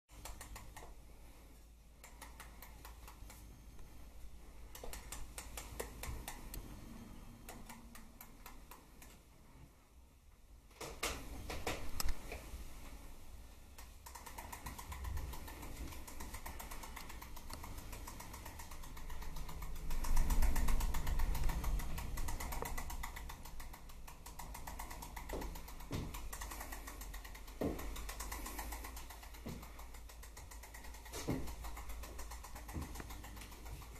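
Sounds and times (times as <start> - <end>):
rapid mechanical clicking: 0.1 - 9.3, 13.7 - 33.9.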